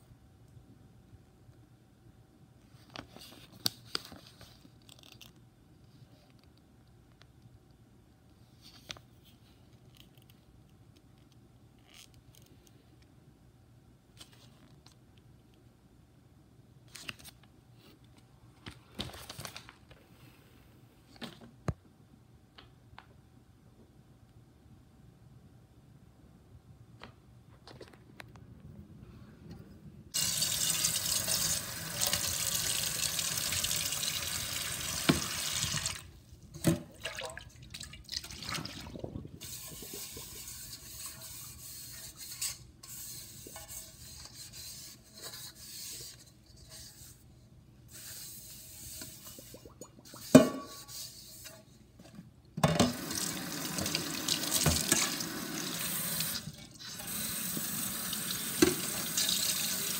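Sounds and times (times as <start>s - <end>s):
pot being rinsed and rubbed: 36.9s - 47.3s, 47.9s - 51.8s.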